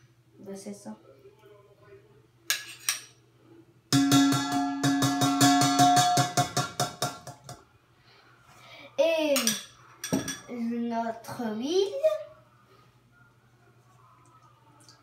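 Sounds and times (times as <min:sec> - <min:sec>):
metal spoon knocking on steel bowl: 0:03.9 - 0:07.6, 0:09.4 - 0:10.5.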